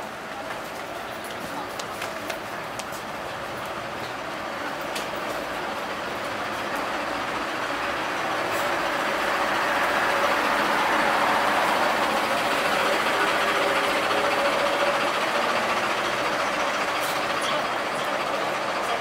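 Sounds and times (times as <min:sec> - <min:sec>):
passing vehicles rushing: 0:02.2 - 0:19.0.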